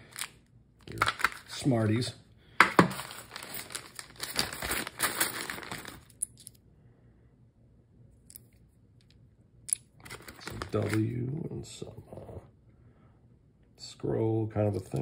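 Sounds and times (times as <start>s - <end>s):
plastic bag crinkling: 2.8s - 6.3s, 10.0s - 11.2s.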